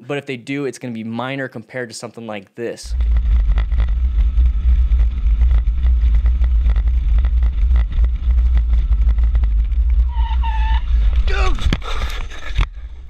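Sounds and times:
wind and road noise rumble: 2.8 - 13.0.

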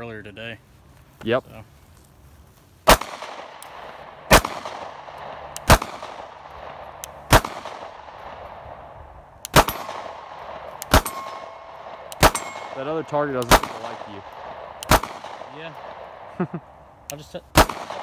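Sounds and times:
pistol shots echoing: 2.9 - 16.3, 17.1 - 18.0.

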